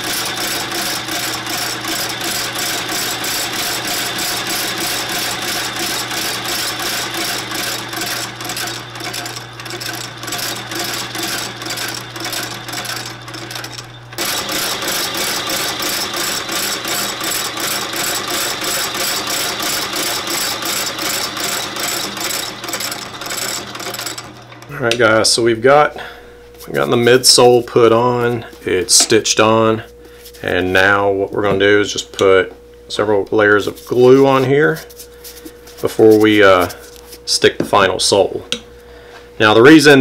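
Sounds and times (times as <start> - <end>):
stitching machine clatter: 0.0 - 24.8
motor hum: 0.0 - 39.2.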